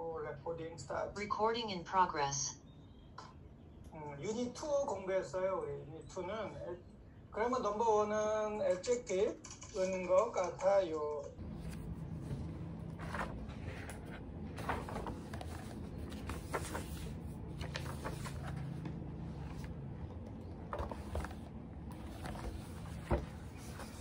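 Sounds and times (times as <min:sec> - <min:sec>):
paper rustling: 0:11.4 - 0:24.0
steady low hum: 0:11.4 - 0:24.0.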